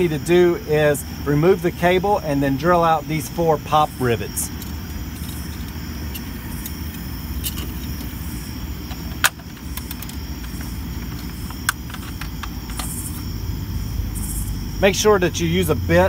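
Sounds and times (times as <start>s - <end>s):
low background rumble: 0.0s - 16.0s
sharp clicks: 8.9s - 13.2s.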